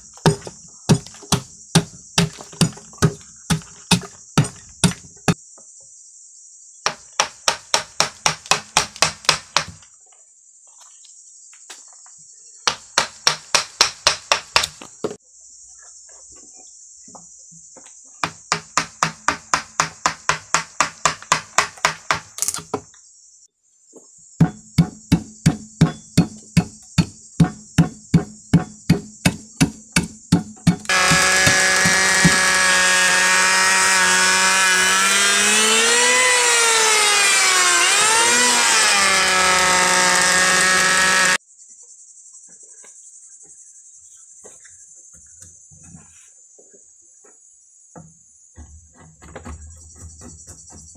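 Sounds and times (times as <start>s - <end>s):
insects buzzing: 0.0s - 46.5s
striking tool hitting wooden log: 0.2s - 5.4s, 6.9s - 9.8s, 12.7s - 14.8s, 18.2s - 22.8s, 24.4s - 34.4s.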